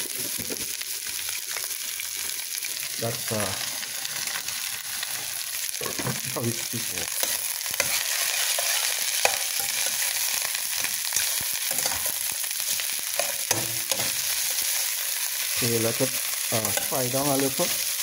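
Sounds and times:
food sizzling in a pan: 0:00.0 - 0:18.0
fork scraping a pan: 0:07.2 - 0:10.1, 0:10.8 - 0:14.9.

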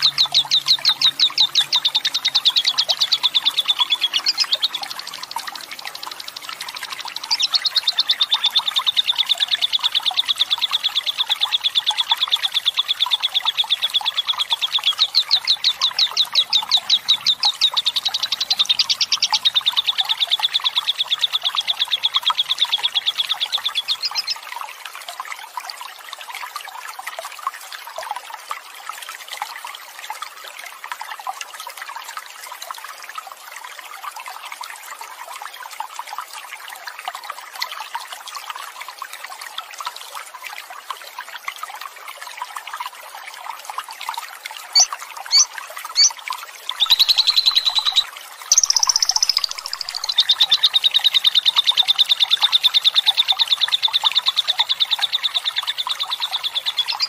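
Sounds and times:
lovebird chattering trill: 0:00.0 - 0:04.9, 0:14.0 - 0:24.4, 0:44.7 - 0:46.1, 0:46.8 - 0:51.6, 0:56.2 - 0:57.0
flowing water rushing: 0:00.0 - 0:57.0.

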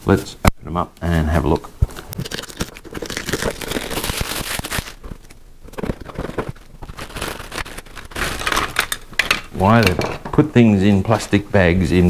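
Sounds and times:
plastic wrapping crinkling: 0:01.4 - 0:09.8.

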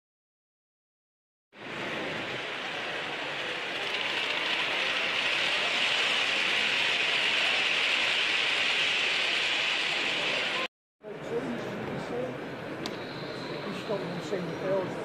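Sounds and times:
model train whirring: 0:01.6 - 0:10.7.

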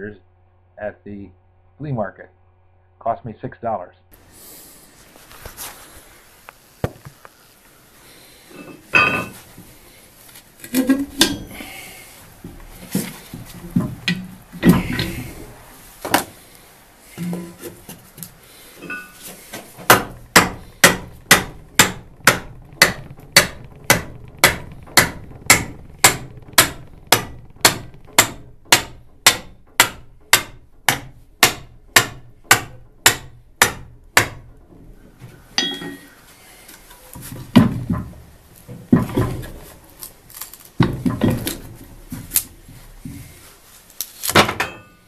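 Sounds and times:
knocks and rattles of wood and iron: 0:08.0 - 0:45.0
hammer striking wooden wedge: 0:17.3 - 0:34.5.

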